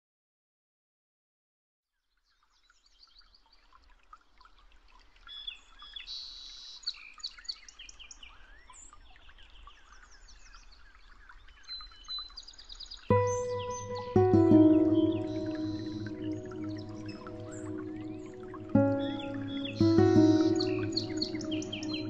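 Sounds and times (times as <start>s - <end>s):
small birds chirping: 5.2s - 22.0s.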